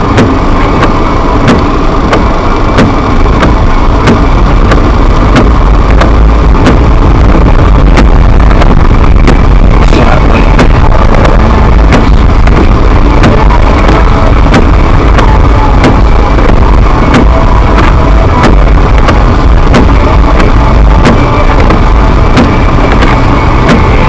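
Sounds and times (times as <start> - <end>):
car engine and tyres rumble: 0.0 - 24.0.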